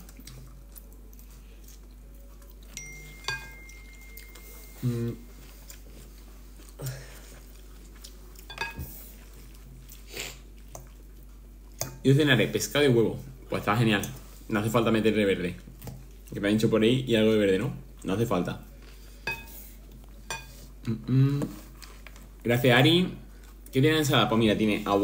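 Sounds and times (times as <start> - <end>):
person chewing: 0.0 - 11.8, 23.3 - 23.8
person humming: 4.6 - 5.4, 20.8 - 21.6.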